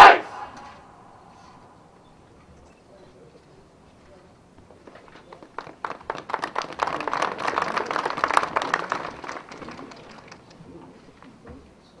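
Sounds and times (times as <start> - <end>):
crowd applauding: 5.3 - 10.6.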